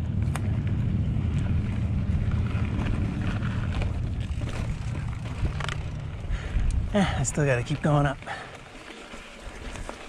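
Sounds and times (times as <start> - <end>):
gravel and bike rattles: 0.0 - 10.0
tyres rumbling on dirt: 0.0 - 10.0
wind on microphone: 0.1 - 7.0.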